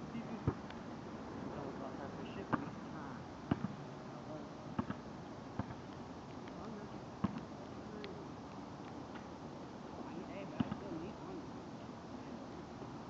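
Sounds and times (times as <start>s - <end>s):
steady background hiss: 0.0s - 13.0s
basketball bouncing on pavement: 2.5s - 2.8s, 3.5s - 3.8s, 4.8s - 6.0s, 7.2s - 7.5s, 10.5s - 10.9s.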